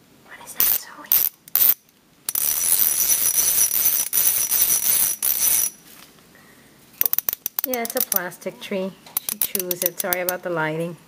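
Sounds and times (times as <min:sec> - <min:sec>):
ratchet wrench clicking: 0:00.6 - 0:05.8, 0:07.0 - 0:08.3, 0:09.2 - 0:10.4.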